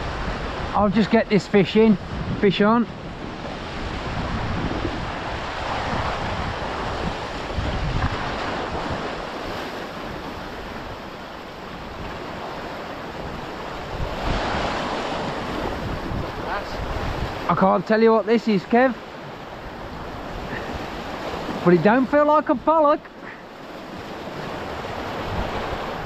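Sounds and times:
wind buffeting microphone: 0.0 - 17.6, 19.0 - 21.9, 23.4 - 26.0
sea waves washing against rocks: 0.0 - 26.0.

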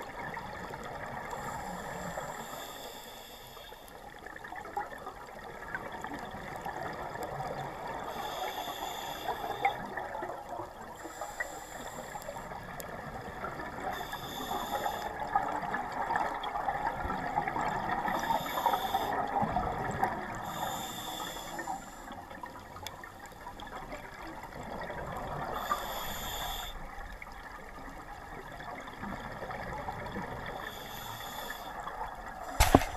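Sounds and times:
exhaled air bubbling underwater: 0.0 - 3.2, 3.9 - 32.9
regulator inhalation hiss: 1.3 - 4.0, 8.1 - 9.8, 11.0 - 12.6, 13.9 - 15.2, 18.1 - 19.3, 20.4 - 22.3, 25.6 - 26.8, 30.6 - 32.9.

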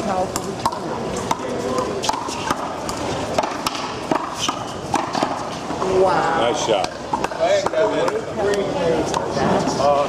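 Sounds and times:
handball whacking hands and wall: 0.7 - 5.5.

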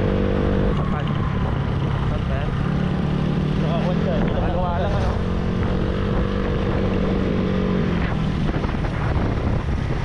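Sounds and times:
motorcycle engine hum: 0.0 - 10.0
wind buffeting microphone: 4.1 - 10.0.

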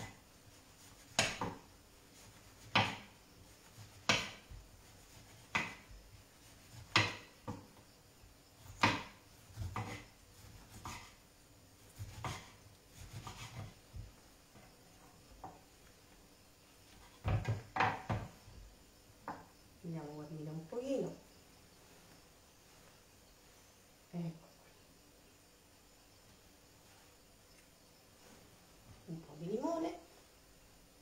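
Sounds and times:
knife slicing on a cutting board: 8.8 - 11.2, 12.0 - 13.8.

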